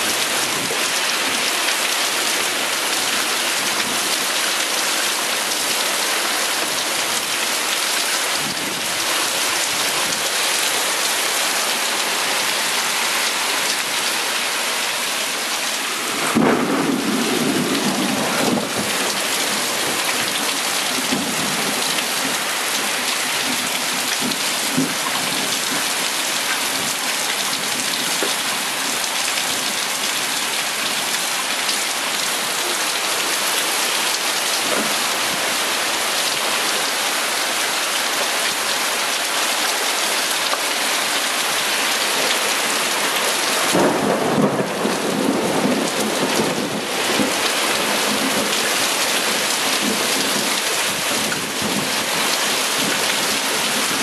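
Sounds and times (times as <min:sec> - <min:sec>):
heavy rain pouring: 0:00.0 - 0:54.0
wind gust: 0:15.8 - 0:19.7.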